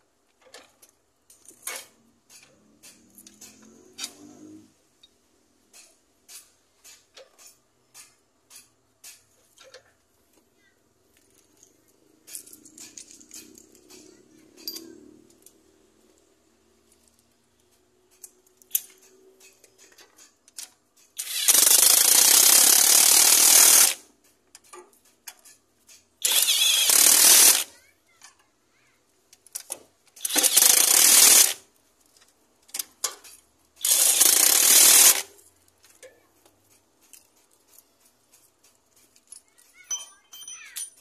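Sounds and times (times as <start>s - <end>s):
pneumatic impact wrench bursts: 21.1s - 24.1s, 26.2s - 27.8s, 30.1s - 31.7s, 33.8s - 35.4s.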